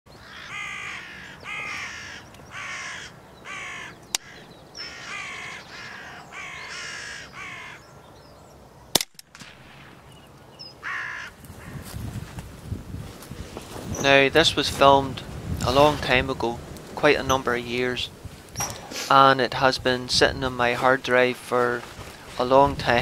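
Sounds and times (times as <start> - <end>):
crows cawing: 0.1 - 7.9, 10.8 - 12.0
sharp crack: 8.9 - 10.5.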